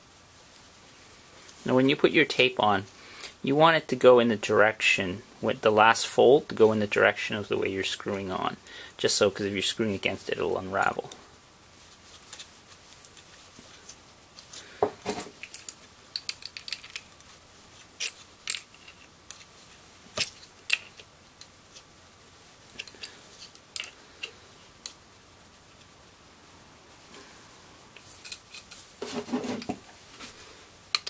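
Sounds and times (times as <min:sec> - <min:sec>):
metal fittings clinking: 0:15.4 - 0:17.1, 0:22.8 - 0:25.0.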